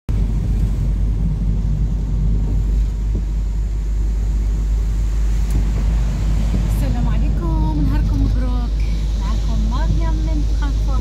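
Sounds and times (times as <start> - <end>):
car engine and road noise: 0.1 - 11.0.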